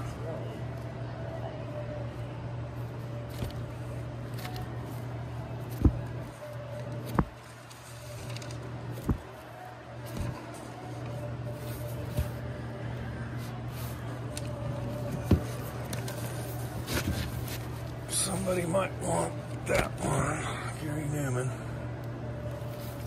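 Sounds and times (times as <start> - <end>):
steady low hum: 0.0 - 23.0
record sleeves flipping: 3.3 - 9.4, 13.6 - 18.0
record jackets knocking together: 5.7 - 6.2, 7.0 - 7.5, 8.2 - 9.4.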